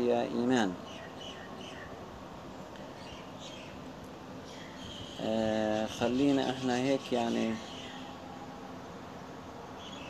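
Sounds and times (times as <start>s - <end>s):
background hiss: 0.0s - 10.0s
small bird chirping: 0.8s - 3.8s, 4.4s - 8.2s, 9.8s - 10.0s.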